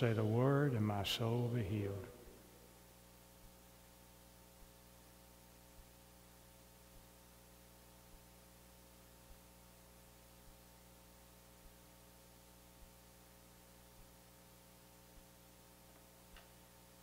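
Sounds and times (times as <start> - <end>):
faint steady hum: 0.0 - 17.0
soft low ticks: 15.9 - 16.6.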